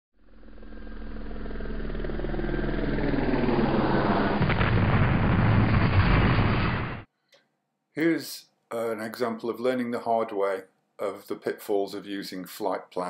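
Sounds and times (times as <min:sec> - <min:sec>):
deep cinematic rumble: 0:00.2 - 0:07.1.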